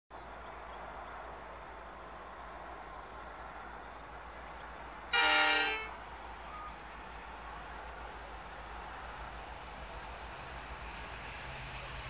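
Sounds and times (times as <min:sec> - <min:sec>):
rural background hiss: 0:00.2 - 0:12.0
locomotive horn blast: 0:05.1 - 0:06.0
faint bird chirps: 0:06.5 - 0:06.8.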